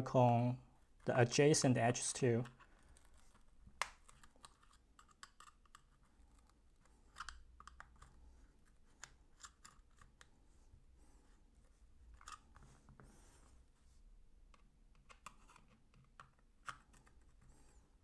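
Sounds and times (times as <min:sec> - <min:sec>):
screwdriver clicking and scraping: 0:02.4 - 0:10.3, 0:12.2 - 0:12.7.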